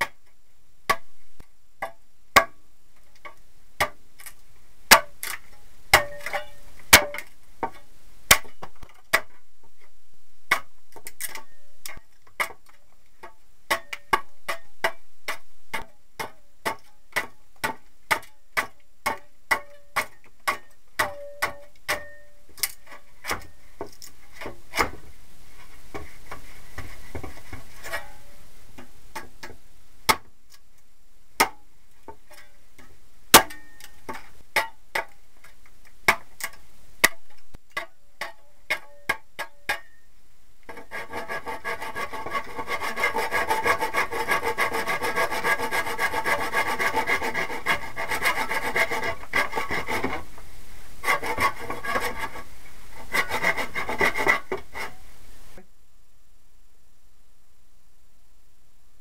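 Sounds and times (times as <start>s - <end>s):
hand file rasping: 40.7s - 50.3s, 51.0s - 55.0s.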